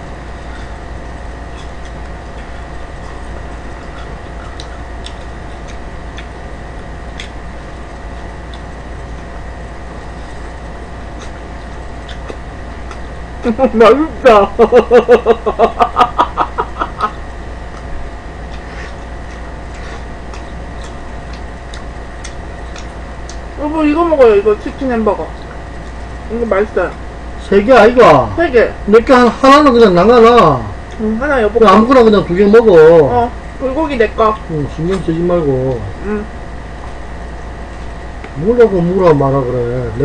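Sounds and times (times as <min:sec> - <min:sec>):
room noise hum and hiss: 0:00.0 - 0:40.0
mouth clicks and smacks chewing: 0:03.8 - 0:06.4, 0:07.1 - 0:07.4, 0:08.0 - 0:09.1, 0:11.2 - 0:13.1, 0:17.7 - 0:23.5
woman laughing: 0:13.5 - 0:17.2.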